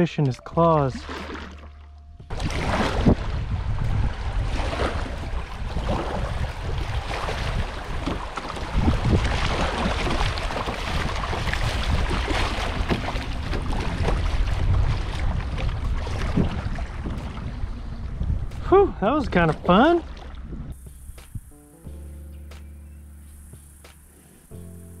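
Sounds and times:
river water splashing along hull: 0:00.0 - 0:25.0
wind buffeting microphone: 0:02.2 - 0:21.6.

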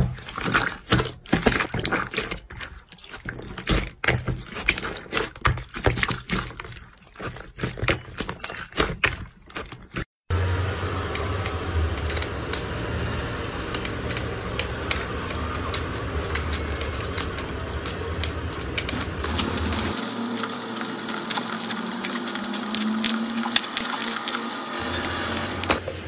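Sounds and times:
low hum: 0:10.3 - 0:26.0
slime sticky crackles: 0:10.8 - 0:25.1.

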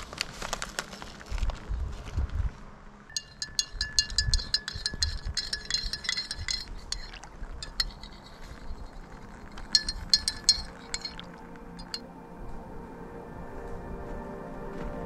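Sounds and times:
utensil clinking in a container: 0:03.1 - 0:12.0.

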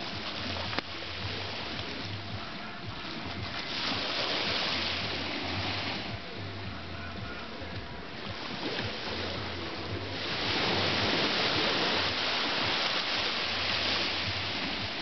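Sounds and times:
small waves washing onto beach: 0:00.0 - 0:15.0.

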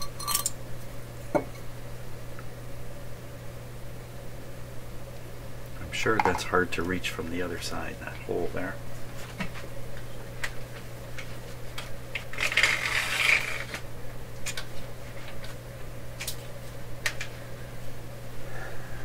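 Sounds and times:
steady low hum: 0:00.0 - 0:19.0
rustling scrape: 0:12.3 - 0:13.8.

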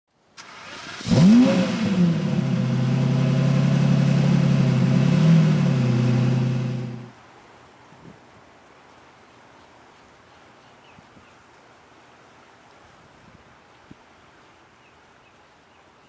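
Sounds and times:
car engine revving: 0:00.5 - 0:07.1.

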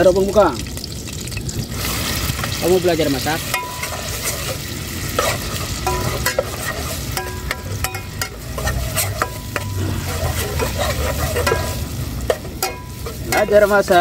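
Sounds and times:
paste sizzling: 0:00.2 - 0:14.0
metal spatula scraping pot: 0:03.4 - 0:14.0
metallic clinks against pot: 0:03.5 - 0:04.3, 0:05.2 - 0:09.8, 0:10.6 - 0:14.0.

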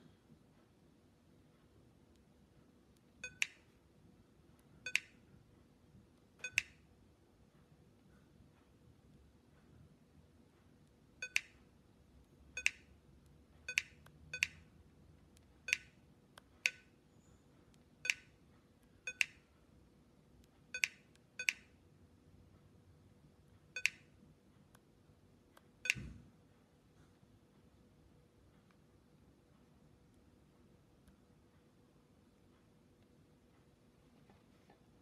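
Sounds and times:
short electronic clicks or beeps: 0:03.2 - 0:03.6, 0:06.4 - 0:06.8, 0:23.8 - 0:24.1, 0:25.8 - 0:26.1.

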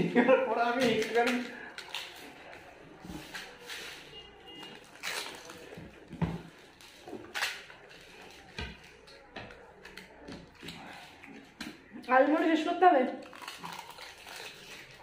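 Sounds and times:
biting and chewing: 0:04.6 - 0:11.9, 0:13.2 - 0:15.0.

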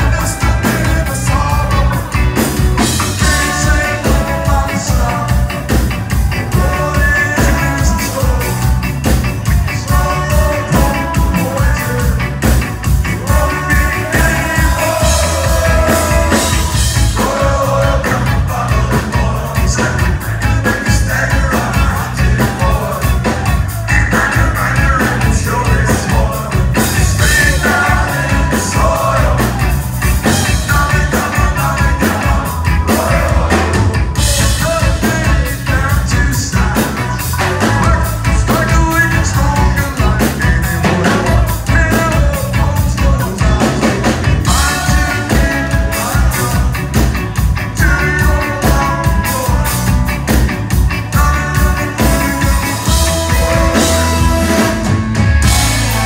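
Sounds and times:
horn section: 0:00.0 - 0:56.0
person singing: 0:00.0 - 0:56.0
ska-punk band playing live: 0:00.0 - 0:56.0.

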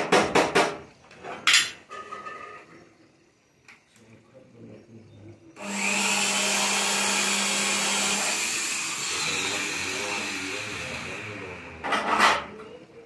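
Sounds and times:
steady motor hum: 0:05.6 - 0:11.9
power drill on metal frame: 0:05.6 - 0:12.5.

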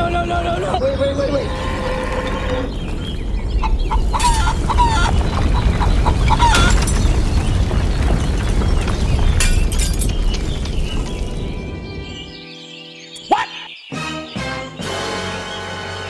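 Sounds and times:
chickens clucking: 0:00.0 - 0:06.9
deep rumble: 0:01.3 - 0:12.2
bricks crashing: 0:04.2 - 0:11.6.

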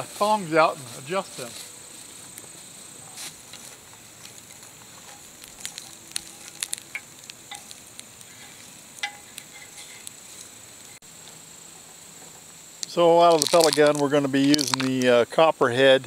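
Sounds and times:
metal tongs clinking on charcoal: 0:04.4 - 0:11.0.

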